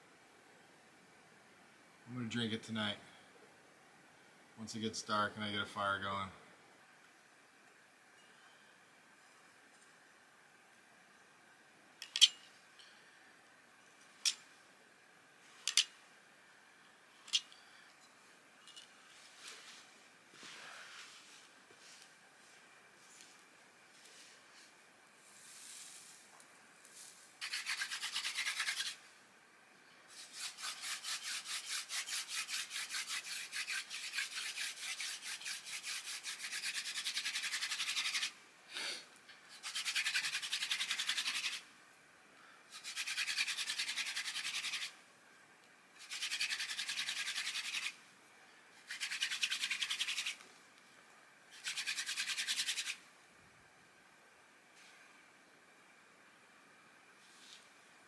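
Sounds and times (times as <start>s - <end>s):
wooden spindle rubbing fireboard: 30.1s - 38.3s, 39.5s - 41.6s, 48.9s - 50.4s.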